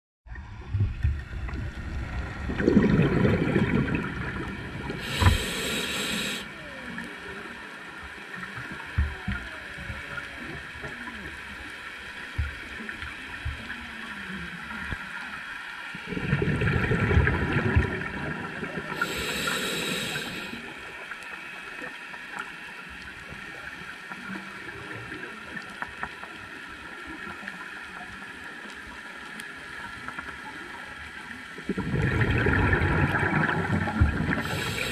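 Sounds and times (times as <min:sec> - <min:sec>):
bubbling exhaled air underwater: 0:00.3 - 0:07.2, 0:15.9 - 0:20.8, 0:31.6 - 0:34.9
regulator inhalation hiss: 0:05.0 - 0:06.6, 0:19.0 - 0:20.7, 0:34.3 - 0:34.9.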